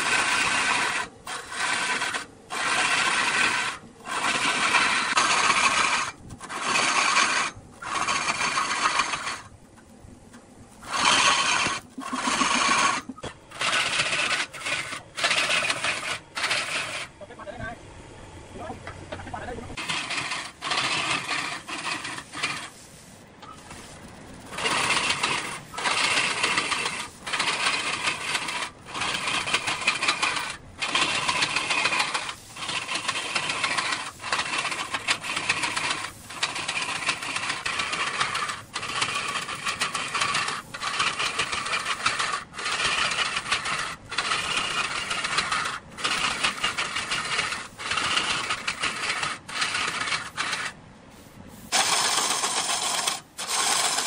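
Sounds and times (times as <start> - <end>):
woodworking machine cutting wood: 0.0 - 9.5, 10.8 - 17.2, 18.8 - 22.8, 24.5 - 50.8, 51.7 - 54.0.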